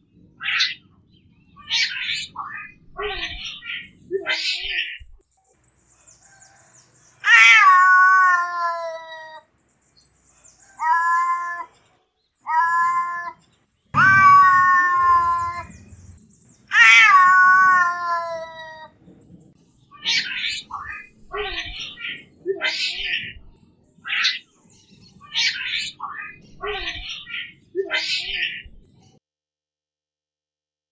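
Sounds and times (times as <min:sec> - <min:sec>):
cat meowing: 0:07.2 - 0:09.4, 0:10.8 - 0:11.7, 0:12.4 - 0:13.4, 0:14.0 - 0:19.0.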